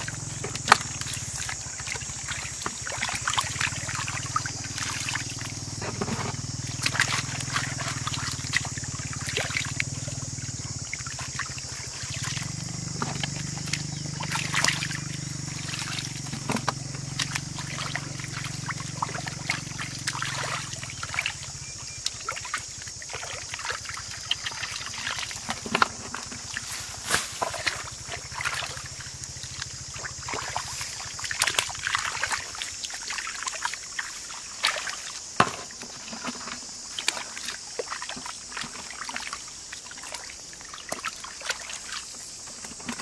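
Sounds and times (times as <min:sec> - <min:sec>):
steady high-pitched hum: 0:00.0 - 0:32.4
water splashing and dripping: 0:00.0 - 0:43.0.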